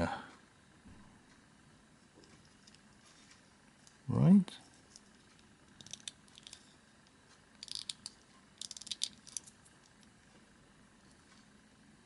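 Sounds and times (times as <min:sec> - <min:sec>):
plastic parts clicking: 0:07.6 - 0:10.0.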